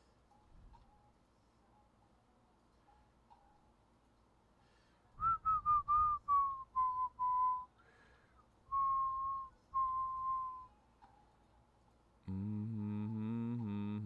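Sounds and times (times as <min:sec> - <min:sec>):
person whistling a tune: 0:05.2 - 0:07.7, 0:08.7 - 0:10.7.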